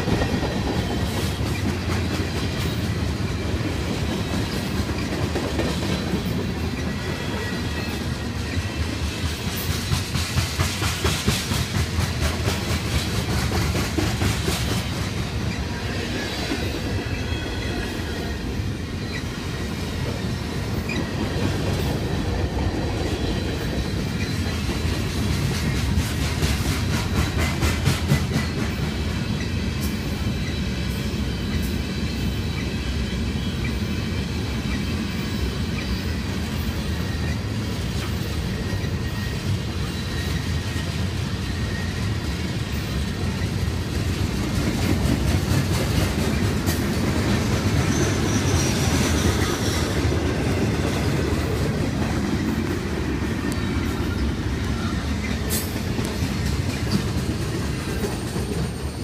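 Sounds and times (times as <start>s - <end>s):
freight train rumbling: 0.0s - 59.0s
high-pitched wheel squeal: 38.6s - 40.8s, 47.8s - 49.9s.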